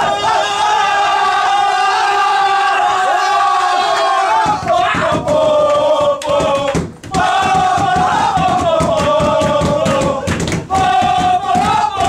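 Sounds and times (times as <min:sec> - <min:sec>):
group chanting and singing: 0:00.0 - 0:12.0.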